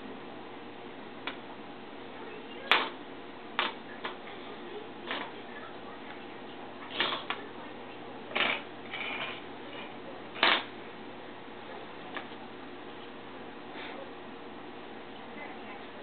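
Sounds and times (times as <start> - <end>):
metal fork scraping on tile: 8.4 - 9.4.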